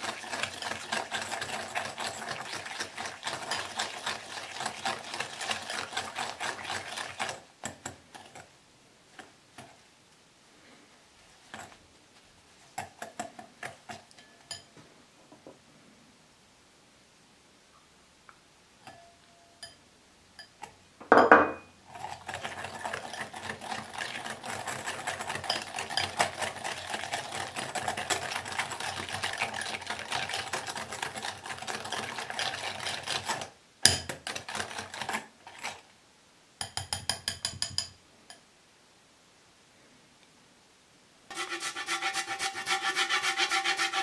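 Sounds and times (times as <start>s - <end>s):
knock: 21.0s - 21.6s
whisk clicking against glass bowl: 36.6s - 37.9s.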